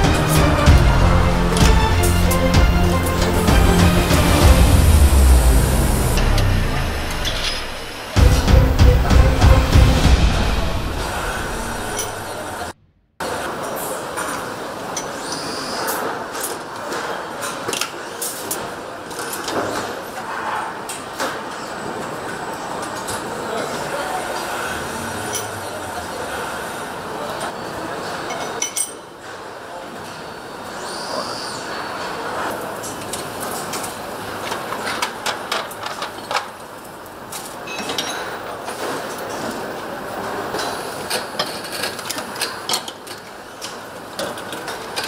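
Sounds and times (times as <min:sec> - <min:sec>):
factory machinery rush: 0:00.0 - 0:14.0, 0:21.3 - 0:28.2.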